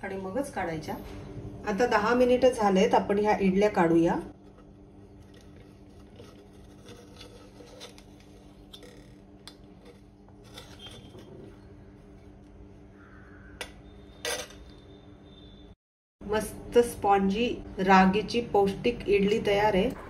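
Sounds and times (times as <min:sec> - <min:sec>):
spoon scraping metal plate: 0:04.3 - 0:11.7.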